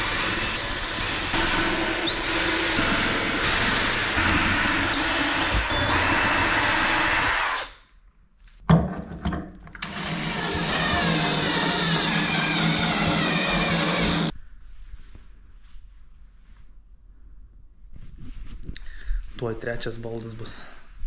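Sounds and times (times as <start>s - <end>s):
power drill whining: 0.0s - 7.8s, 9.8s - 14.3s.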